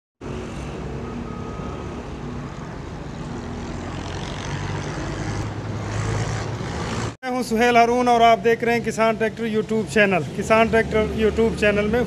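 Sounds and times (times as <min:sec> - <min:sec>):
street traffic noise: 0:00.2 - 0:12.0.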